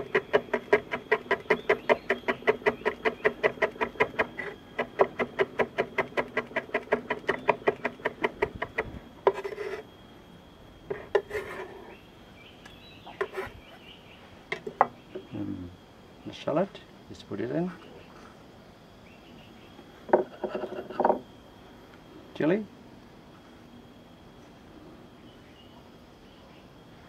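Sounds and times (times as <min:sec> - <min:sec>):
knife scraping board: 0:00.0 - 0:09.9, 0:10.9 - 0:11.9, 0:13.2 - 0:13.6, 0:20.2 - 0:21.2.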